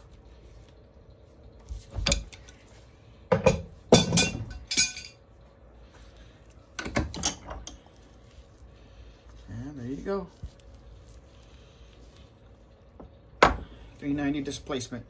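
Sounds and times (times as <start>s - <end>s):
metal tools clinking on workbench: 4.0s - 5.2s.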